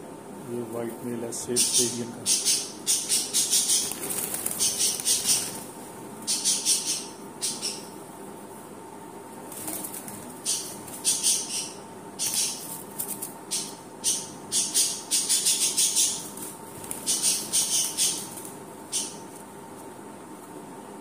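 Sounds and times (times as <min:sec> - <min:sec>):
budgerigars chirping: 0:01.6 - 0:05.6, 0:06.3 - 0:07.9, 0:10.4 - 0:12.6, 0:13.5 - 0:16.2, 0:17.0 - 0:18.3, 0:18.9 - 0:19.2.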